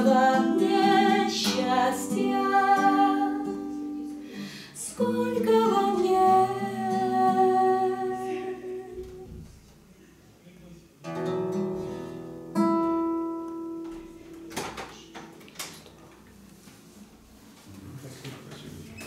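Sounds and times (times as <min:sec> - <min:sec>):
strummed classical guitar: 0:00.0 - 0:09.2, 0:11.0 - 0:15.8
woman singing long notes: 0:00.0 - 0:09.4.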